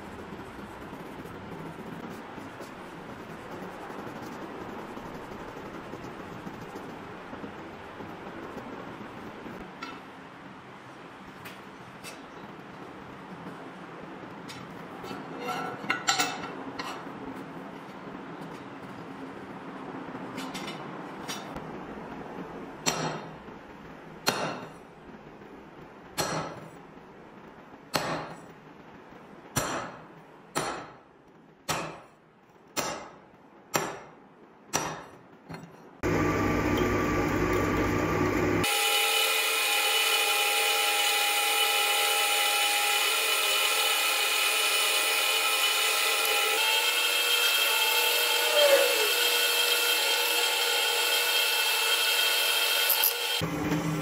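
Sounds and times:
drill press motor hum: 0:36.0 - 0:54.0.

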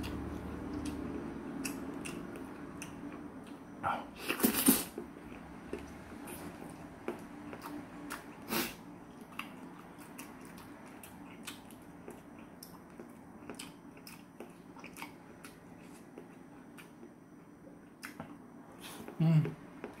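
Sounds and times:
person chewing wet clicks: 0:00.0 - 0:03.6, 0:05.2 - 0:08.4, 0:09.1 - 0:17.2.

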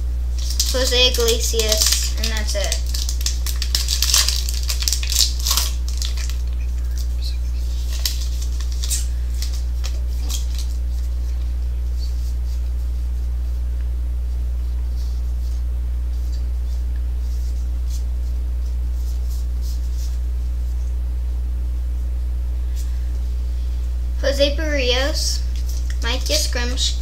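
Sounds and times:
low electrical hum: 0:00.0 - 0:27.0
foil wrapper crinkling: 0:00.4 - 0:12.1.

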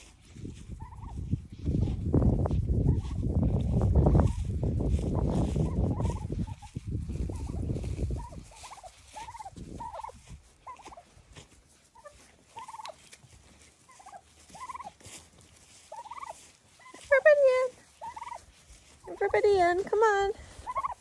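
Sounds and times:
turkeys calling: 0:00.8 - 0:01.2, 0:02.8 - 0:03.2, 0:05.2 - 0:21.0.

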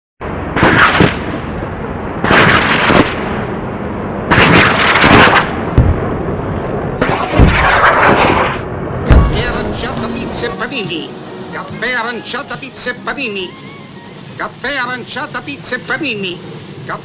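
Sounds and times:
loud explosion-like blasts: 0:00.2 - 0:10.6
steady rushing noise: 0:00.2 - 0:17.0.

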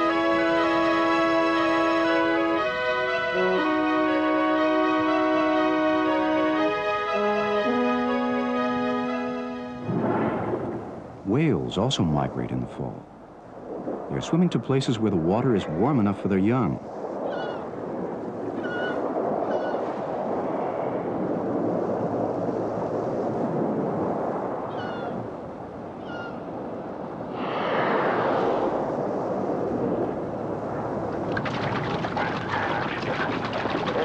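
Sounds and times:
broad rushing burst: 0:00.0 - 0:11.2, 0:27.2 - 0:30.0
sea and water noise: 0:00.0 - 0:34.0
whale calls: 0:17.2 - 0:17.7, 0:18.5 - 0:20.0, 0:24.7 - 0:25.2, 0:26.0 - 0:26.4
animals splashing through river: 0:30.6 - 0:34.0.

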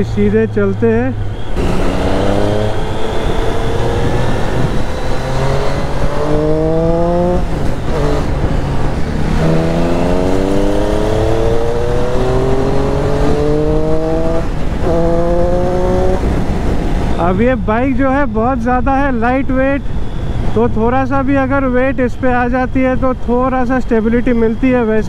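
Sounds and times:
motorcycle engine accelerating: 0:00.0 - 0:17.8
wind rush: 0:01.2 - 0:21.0.

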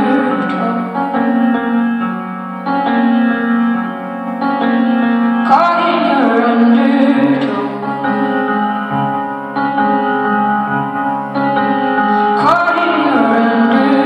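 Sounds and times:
woman singing: 0:00.0 - 0:01.6, 0:05.4 - 0:08.5, 0:12.3 - 0:14.0
keyboard playing chords: 0:00.0 - 0:14.0.

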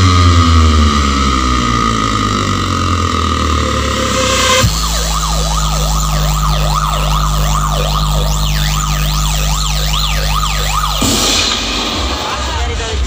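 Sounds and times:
siren tone sweeping up and down: 0:00.0 - 0:12.8
low bass drone: 0:00.0 - 0:13.0.

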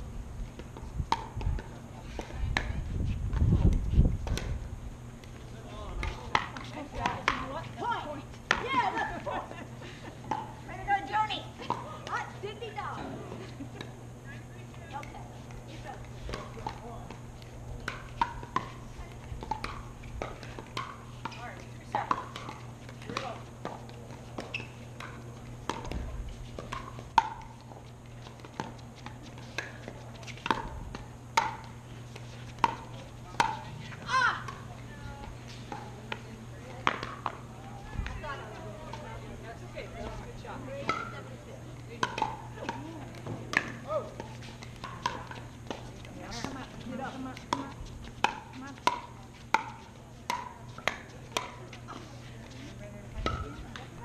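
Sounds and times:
steady low hum: 0:00.0 - 0:54.0
paddles hitting pickleball: 0:00.5 - 0:04.6, 0:05.2 - 0:14.0, 0:14.7 - 0:54.0
ball bouncing on hard court: 0:06.0 - 0:07.6, 0:19.4 - 0:27.5, 0:35.7 - 0:37.4, 0:42.0 - 0:44.0, 0:44.8 - 0:51.7.

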